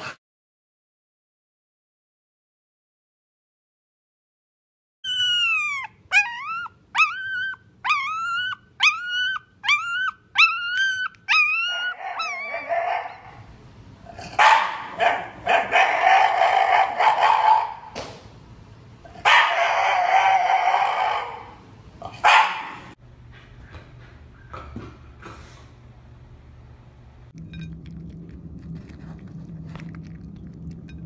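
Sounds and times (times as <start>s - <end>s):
dog whining: 5.0s - 13.4s.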